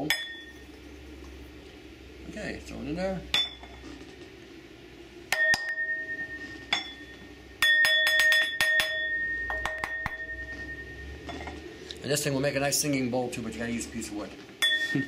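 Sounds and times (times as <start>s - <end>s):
bell-like ringing of bowl: 5.3s - 11.6s, 14.6s - 15.0s.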